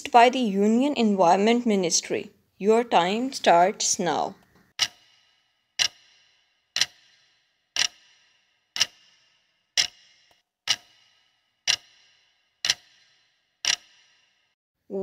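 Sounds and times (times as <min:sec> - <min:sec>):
clock ticking: 0:03.5 - 0:14.4.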